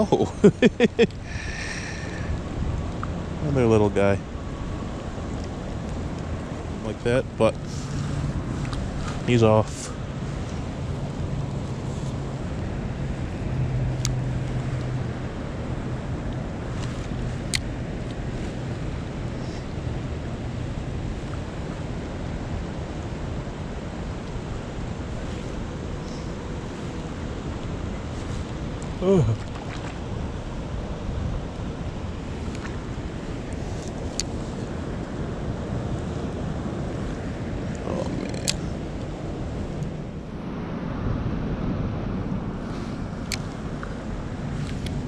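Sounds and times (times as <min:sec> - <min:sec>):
creek water flowing: 0:04.2 - 0:40.2.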